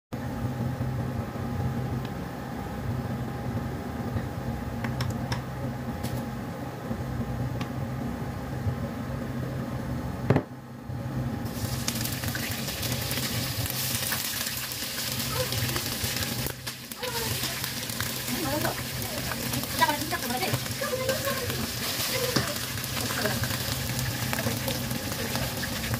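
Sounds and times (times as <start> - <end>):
oil sizzling in a wok: 11.4 - 25.9.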